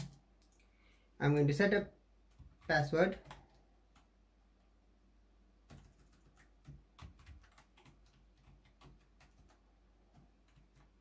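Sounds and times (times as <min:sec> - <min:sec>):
computer keyboard typing: 0:02.3 - 0:04.1, 0:05.6 - 0:11.0.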